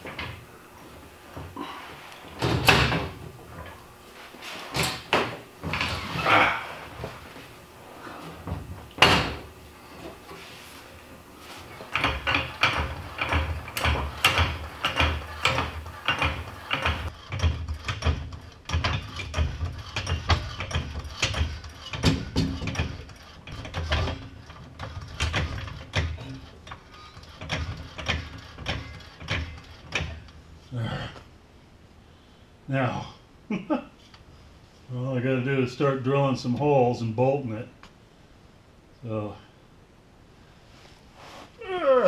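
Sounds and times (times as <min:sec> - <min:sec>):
hydraulic jack pumping clunks: 0:11.7 - 0:30.3.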